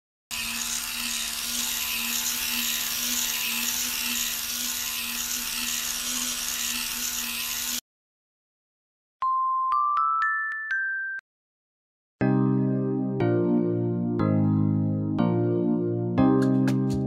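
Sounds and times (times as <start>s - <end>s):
small toy motor whining: 0.3s - 7.8s.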